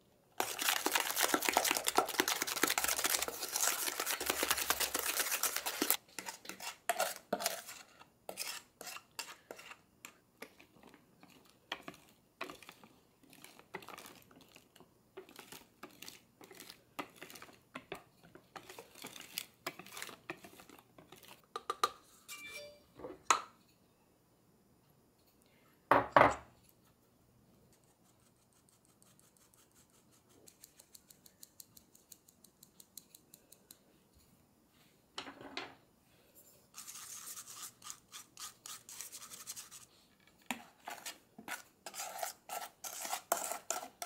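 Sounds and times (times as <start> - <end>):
hand whisk strokes: 0.4 - 9.8, 10.4 - 21.4, 36.7 - 44.0
utensil scraping bowl: 0.4 - 21.4, 36.7 - 39.9, 40.5 - 44.0.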